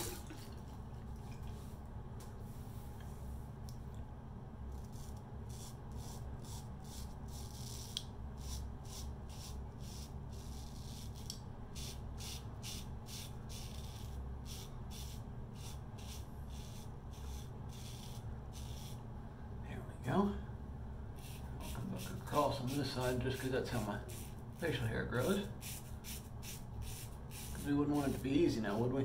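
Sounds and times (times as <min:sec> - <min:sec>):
razor scraping stubble: 0:04.8 - 0:19.0.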